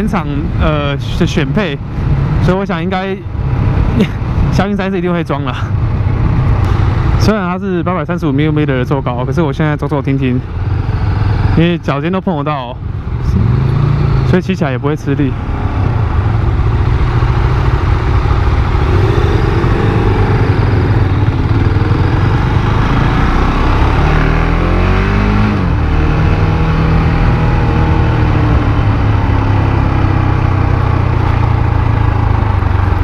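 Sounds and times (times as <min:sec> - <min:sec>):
motorcycle engine revving: 0:10.0 - 0:12.2, 0:12.9 - 0:33.0.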